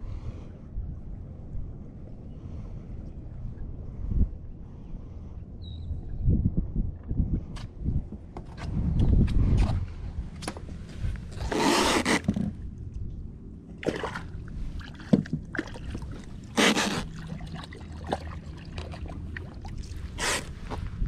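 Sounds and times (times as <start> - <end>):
water splashing beside a boat: 13.7 - 21.0.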